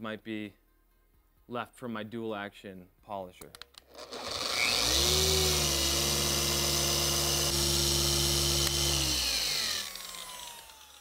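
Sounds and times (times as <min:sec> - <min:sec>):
polisher spinning down: 0:03.9 - 0:11.0.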